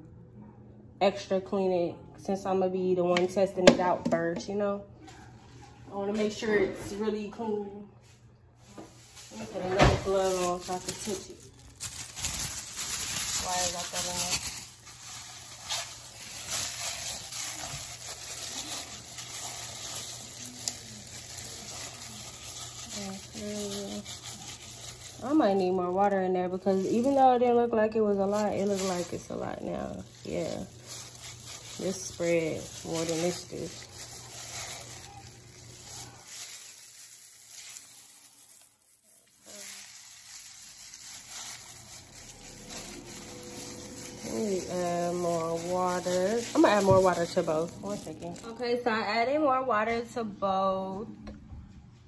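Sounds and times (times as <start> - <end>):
plastic glove squishing and crinkling: 8.6 - 49.3
wet squishing in water: 29.8 - 48.5.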